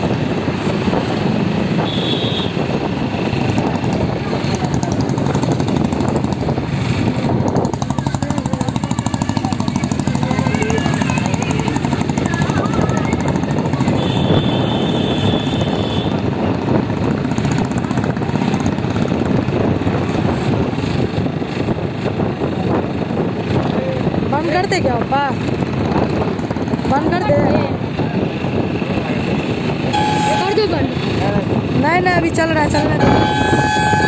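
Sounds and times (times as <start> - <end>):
steady high tone: 29.9 - 30.6.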